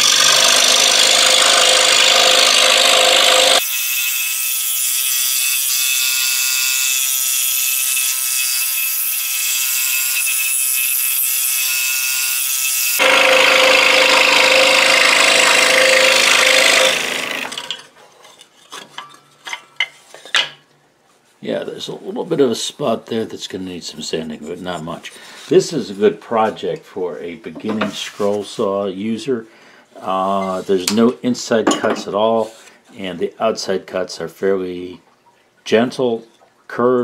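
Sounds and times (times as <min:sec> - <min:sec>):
scroll saw cutting wood: 0:00.0 - 0:17.9.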